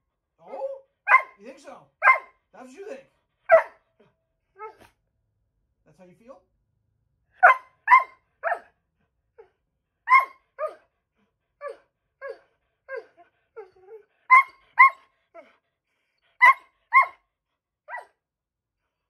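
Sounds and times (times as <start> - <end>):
dog barking: 0.5 - 1.4, 2.0 - 2.4, 3.5 - 3.9, 7.4 - 8.8, 10.1 - 10.8, 14.3 - 15.0, 16.4 - 17.2, 17.9 - 18.1.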